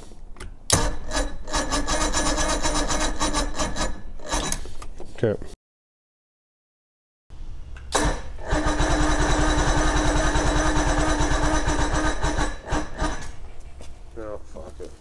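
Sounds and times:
outboard engine starter cranking: 0:07.9 - 0:13.3.

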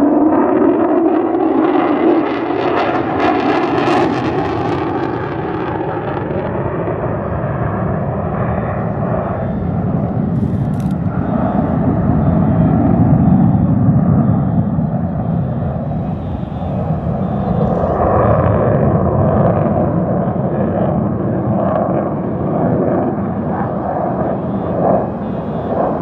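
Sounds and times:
jet engine roar: 0:00.0 - 0:26.0.

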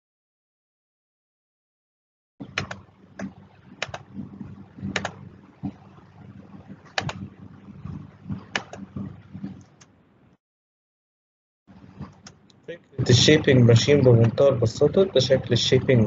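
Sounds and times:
mouse and keyboard clicks: 0:02.4 - 0:04.0, 0:04.9 - 0:05.2, 0:07.0 - 0:07.2, 0:08.5 - 0:08.9
steady low hum: 0:02.4 - 0:10.4, 0:11.7 - 0:16.0.

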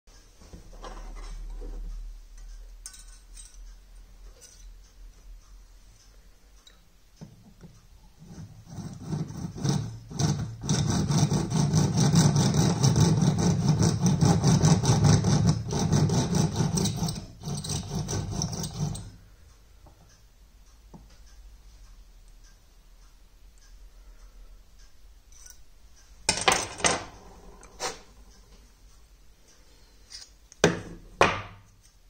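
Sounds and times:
cutter rasping into brass: 0:08.2 - 0:19.2.

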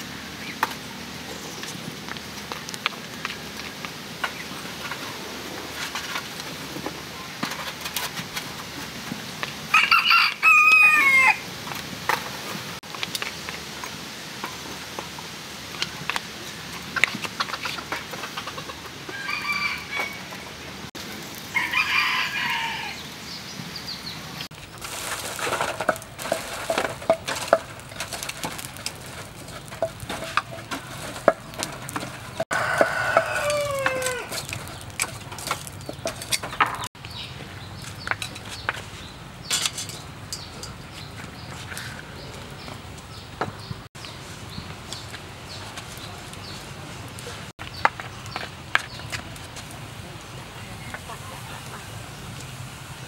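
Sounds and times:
charcoal crackling in fire: 0:00.0 - 0:53.0
rooster crowing: 0:09.7 - 0:11.5, 0:19.1 - 0:20.5, 0:21.5 - 0:23.1, 0:32.5 - 0:34.4.

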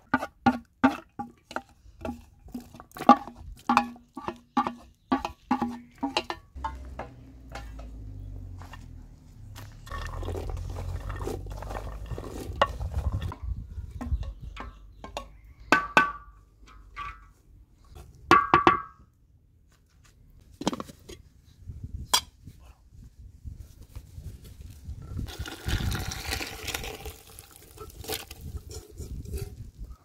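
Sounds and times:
metal pots and lids clinking: 0:00.0 - 0:08.1.

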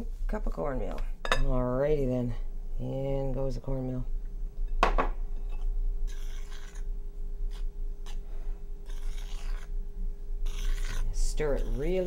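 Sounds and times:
spoon scraping in bowl: 0:05.4 - 0:06.9, 0:08.9 - 0:09.7, 0:10.4 - 0:12.0.

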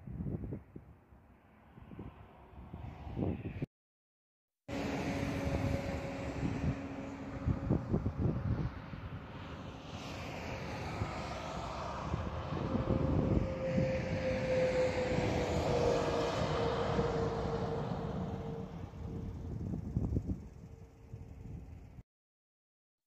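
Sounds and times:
wind buffeting microphone: 0:00.0 - 0:01.0, 0:01.7 - 0:03.7, 0:04.8 - 0:22.0
engine drone passing by: 0:01.2 - 0:03.7, 0:04.7 - 0:22.0.

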